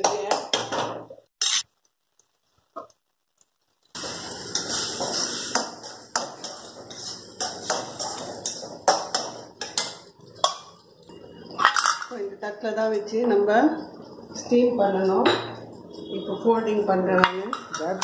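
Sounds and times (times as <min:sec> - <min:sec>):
metal spoon scraping pan: 0:04.2 - 0:10.6.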